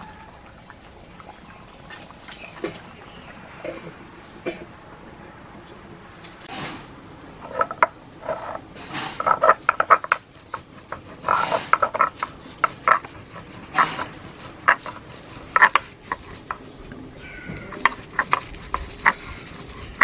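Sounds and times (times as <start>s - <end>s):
stone roller grinding: 7.4s - 16.7s, 17.5s - 20.0s.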